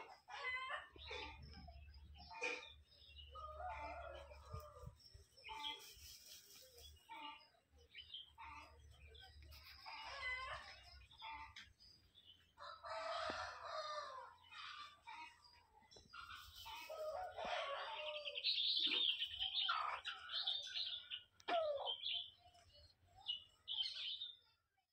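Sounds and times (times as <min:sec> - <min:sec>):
chickens clucking: 0:00.0 - 0:24.6
rooster crowing: 0:12.6 - 0:14.4.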